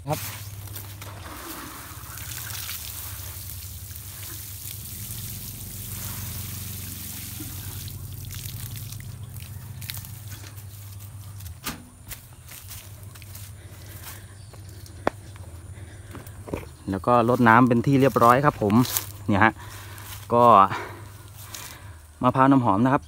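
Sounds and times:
water sprinkling from watering can: 0:00.0 - 0:11.6.

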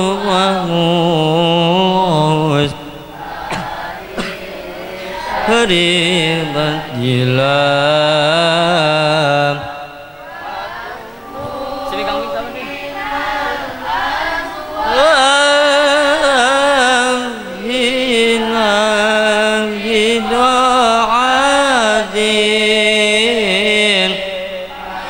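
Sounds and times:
person chanting devotional poem: 0:00.0 - 0:25.0.

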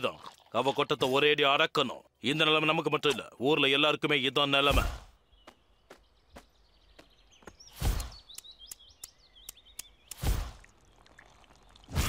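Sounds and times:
faint bird chirps: 0:04.6 - 0:11.9.

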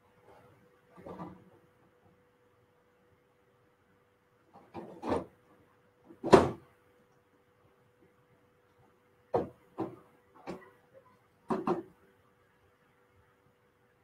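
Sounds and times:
faint steady hum: 0:00.0 - 0:14.0
hard objects knocking and clunking: 0:09.3 - 0:10.7, 0:11.4 - 0:12.0.

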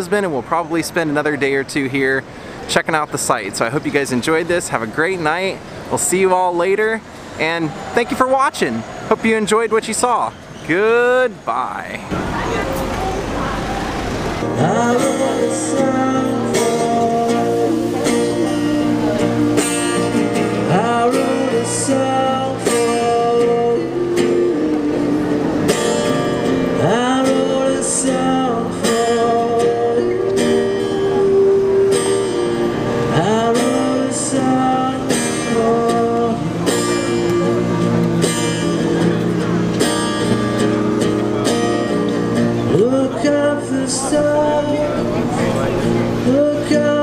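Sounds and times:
acoustic guitar strumming: 0:12.1 - 0:47.0
man singing into a microphone: 0:14.4 - 0:39.7, 0:42.5 - 0:47.0.

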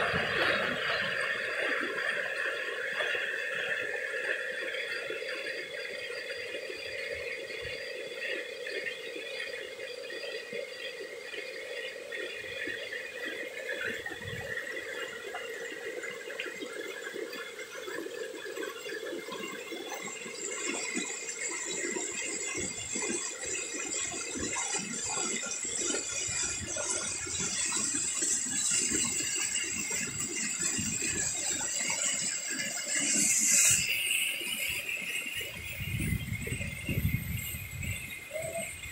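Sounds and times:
water rushing over rocks: 0:00.0 - 0:08.1.

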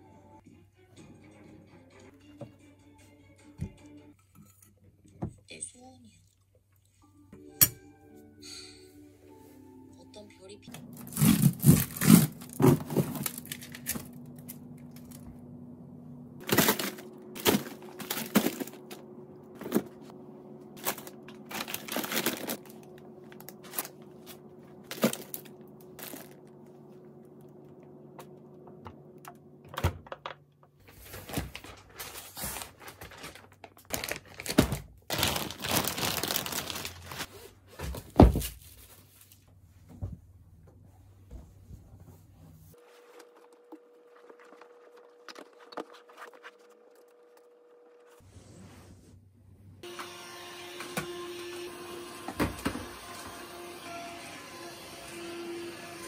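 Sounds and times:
frozen food packages crinkling: 0:10.7 - 0:15.2, 0:16.4 - 0:20.0, 0:20.8 - 0:26.5, 0:30.8 - 0:37.3
refrigerator hum: 0:10.7 - 0:56.0
rolled rug rustling and thumping: 0:37.7 - 0:39.2.

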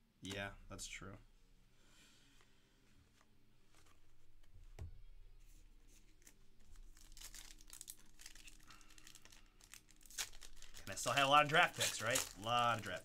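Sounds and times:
foil pack tearing and crinkling: 0:06.9 - 0:13.0.

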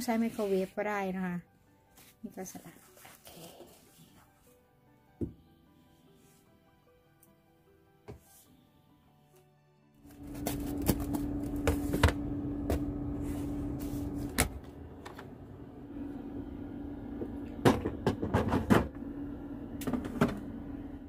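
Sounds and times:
steady low hum: 0:10.1 - 0:21.0.

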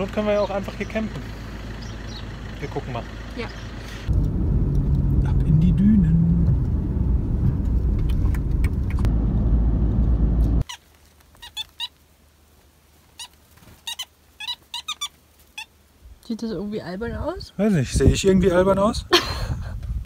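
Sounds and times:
car driving on road: 0:00.0 - 0:10.6
high bird chirps: 0:01.7 - 0:02.4.

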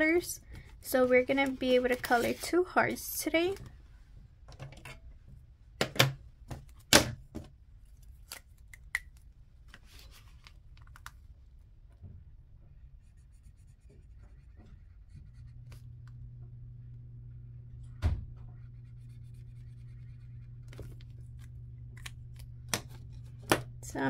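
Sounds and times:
low steady hum: 0:00.0 - 0:24.0
felt-tip marker scratching paper: 0:13.0 - 0:15.8, 0:18.6 - 0:20.7.

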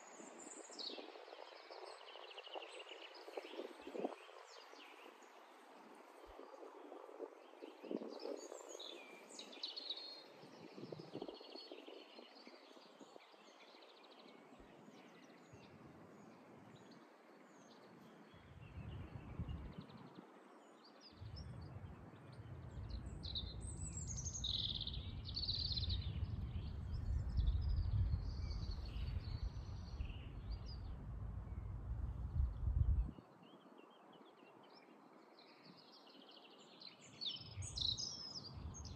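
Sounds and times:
songbirds chirping: 0:00.0 - 0:38.9
low rumble: 0:25.0 - 0:33.1.

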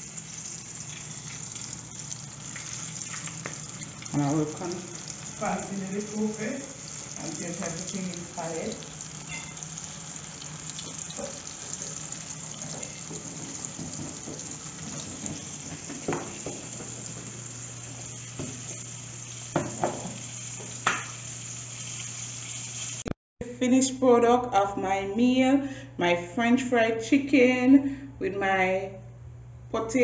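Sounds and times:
chicken sizzling in hot oil: 0:00.0 - 0:23.2.

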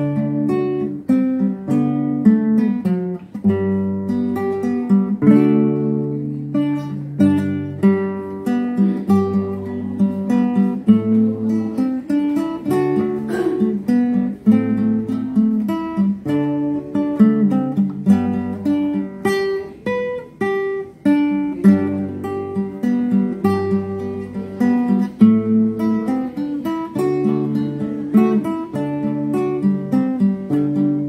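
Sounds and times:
fingerpicked classical guitar: 0:00.0 - 0:31.0.

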